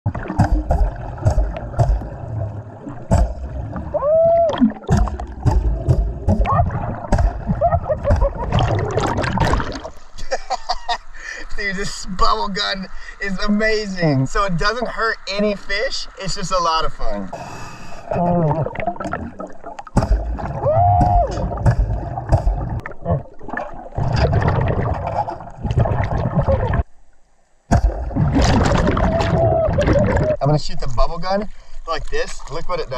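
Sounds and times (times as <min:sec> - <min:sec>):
underwater rumbling thumps: 0:00.1 - 0:10.0, 0:18.3 - 0:26.9, 0:27.7 - 0:30.4
sharp underwater clicks: 0:04.5 - 0:10.0.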